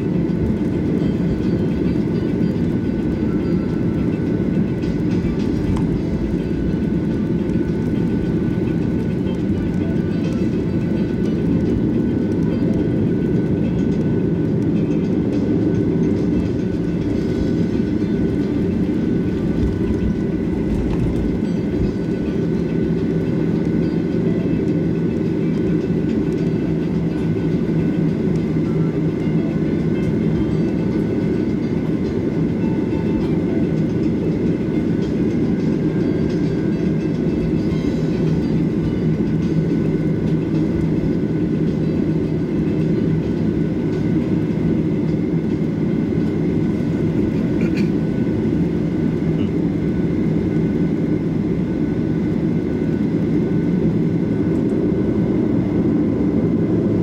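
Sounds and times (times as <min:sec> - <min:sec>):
rolling rumble of landing gear: 0:00.0 - 0:55.4
jet engines humming: 0:00.0 - 0:57.0.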